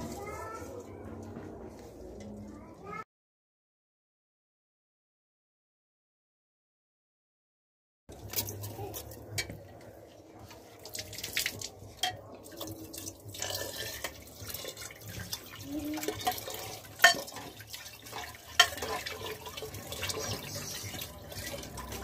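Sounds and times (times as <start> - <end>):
metal ladle stirring: 8.1 - 22.0
water pouring into a pot: 8.1 - 22.0
ladle clinking against pot: 12.0 - 12.6, 16.1 - 22.0.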